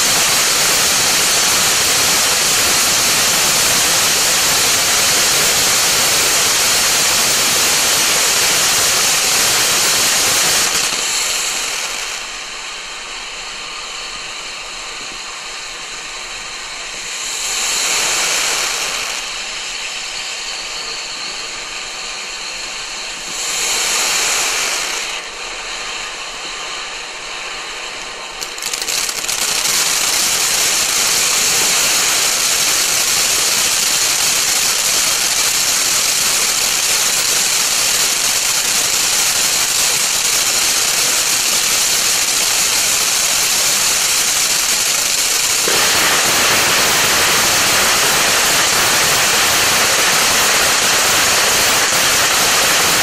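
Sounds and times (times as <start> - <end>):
firework fountain hissing: 0.0 - 53.0.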